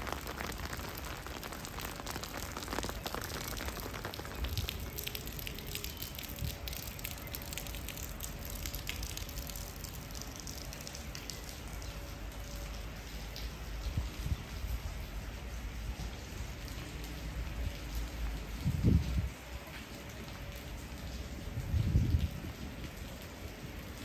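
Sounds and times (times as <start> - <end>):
heavy rain falling: 0.0 - 24.0.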